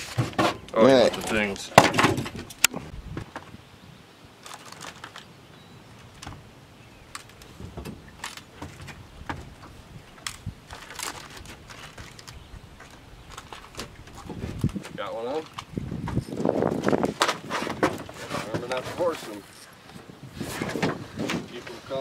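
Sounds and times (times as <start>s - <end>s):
fishing tackle clicking in metal boat: 7.1s - 12.4s.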